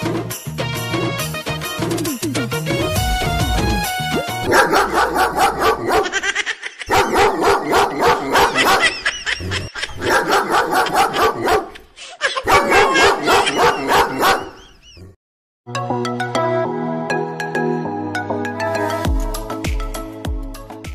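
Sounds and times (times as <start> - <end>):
recorded dog barking through speaker: 4.4 - 6.1, 6.9 - 8.9, 10.0 - 11.8, 12.4 - 14.6.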